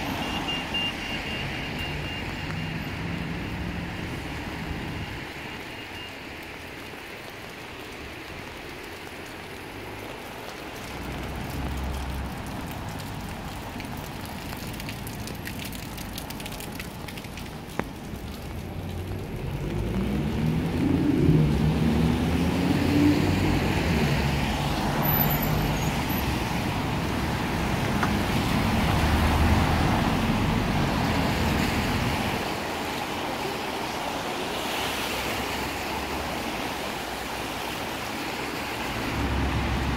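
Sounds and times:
traffic hiss on wet road: 0.0s - 39.9s
tyres hissing on wet road: 0.0s - 39.9s
vehicle engine accelerating: 18.9s - 24.6s.

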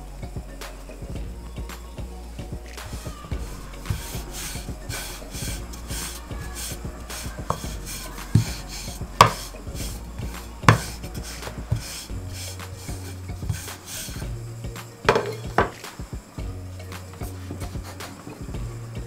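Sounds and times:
wood knocking on wood: 2.7s - 18.7s
rolling pin swishing over dough: 3.0s - 14.2s.

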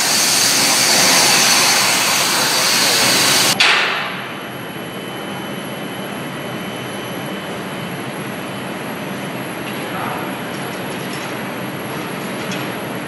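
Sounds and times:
loud hiss: 0.0s - 3.6s
workshop machinery hum: 0.0s - 13.0s.

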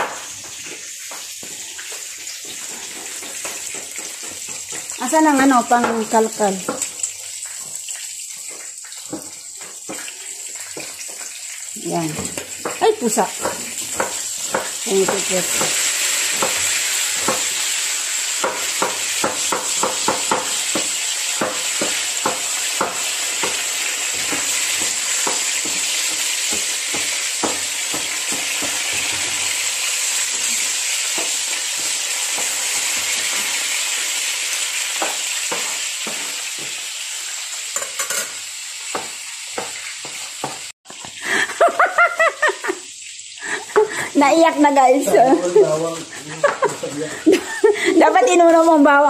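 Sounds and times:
oil sizzling in a frying pan: 0.0s - 49.0s
knife chopping on a cutting board: 12.2s - 17.6s, 18.4s - 29.3s, 38.9s - 40.7s.

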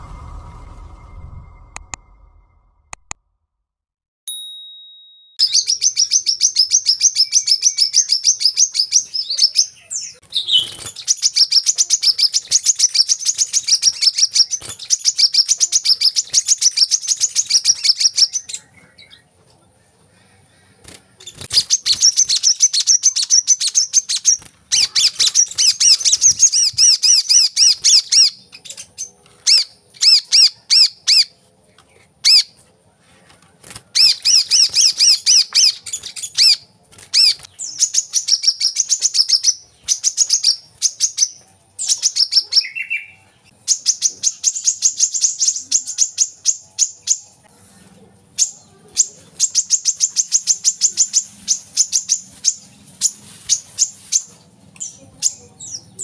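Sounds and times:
bird singing high chattering notes: 5.4s - 19.2s, 21.2s - 31.3s.

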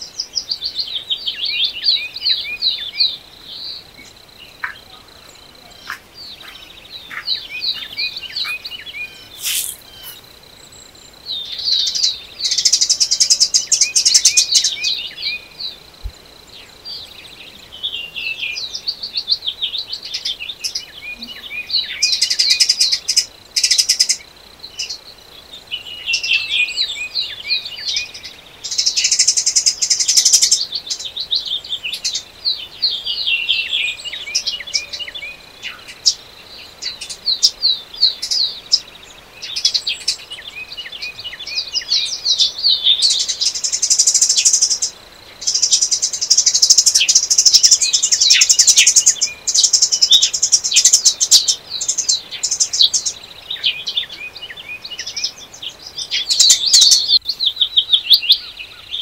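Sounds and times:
songbirds chirping: 0.0s - 59.0s
buzzy bird trills: 5.8s - 10.3s.

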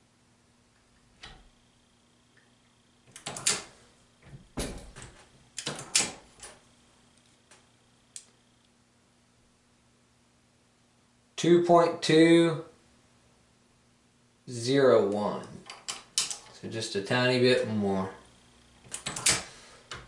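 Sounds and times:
metallic clicks and clattering: 3.1s - 3.7s, 15.6s - 16.6s.

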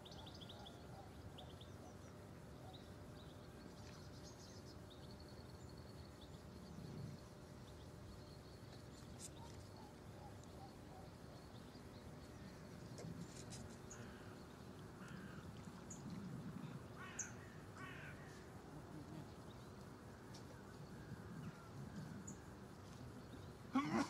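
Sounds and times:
small birds chirping: 0.0s - 24.0s
crow cawing: 17.0s - 18.4s.

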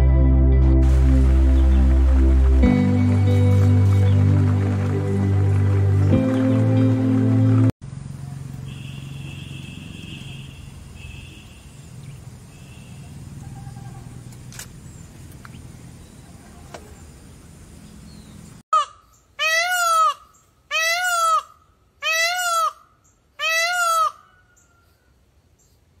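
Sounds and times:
low rumble: 0.0s - 7.7s
peacock calling: 8.8s - 14.3s, 18.8s - 25.1s.

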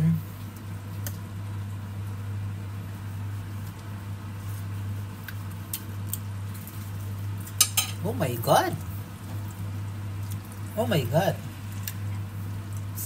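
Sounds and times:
appliance low hum: 0.0s - 13.0s.

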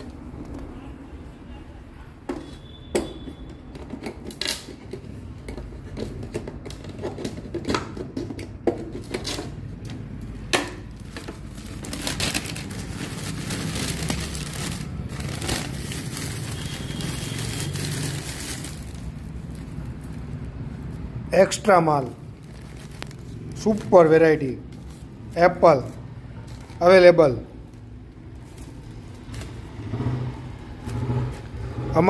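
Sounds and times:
newspaper rustling and crinkling: 9.6s - 29.9s.

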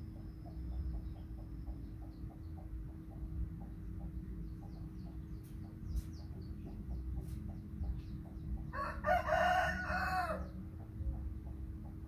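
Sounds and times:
faint steady hum: 0.0s - 12.0s
rooster crowing: 8.7s - 10.6s.

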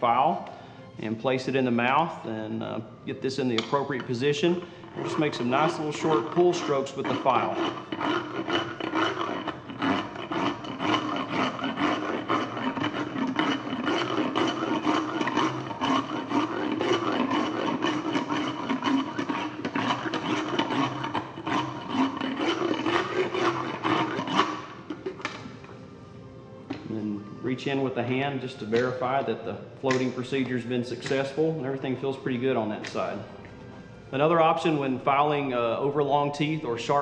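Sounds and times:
file rasping on horse teeth: 3.6s - 25.4s.

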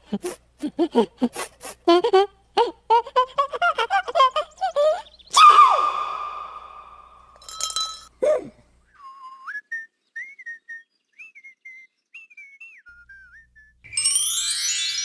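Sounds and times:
high whistle sliding notes: 5.3s - 7.3s
bright clinking flourish: 13.9s - 15.0s.

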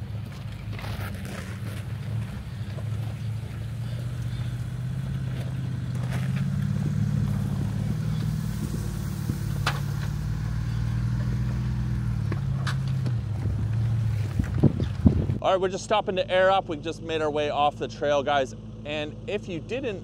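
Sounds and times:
rock clicking under tyres: 0.0s - 8.8s
vehicle engine running low: 0.0s - 20.0s.

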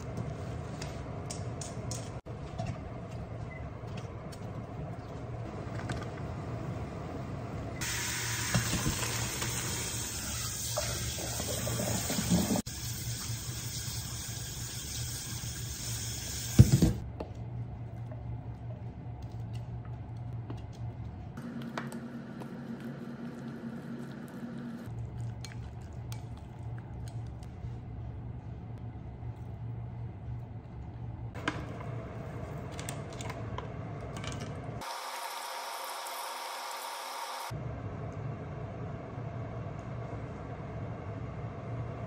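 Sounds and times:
tap running into a sink: 16.5s - 17.0s.

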